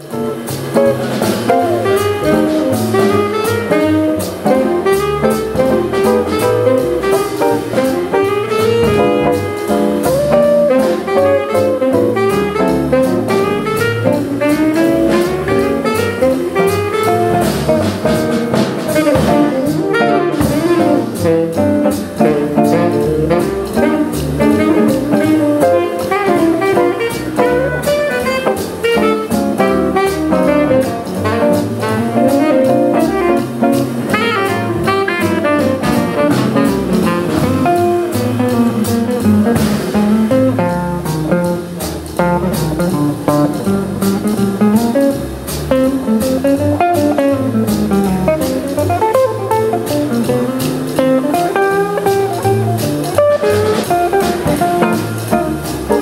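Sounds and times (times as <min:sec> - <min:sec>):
drum kit: 0:00.0 - 0:56.0
upright bass: 0:00.0 - 0:56.0
electric guitar: 0:00.1 - 0:56.0
saxophone: 0:01.5 - 0:18.0, 0:18.9 - 0:40.7.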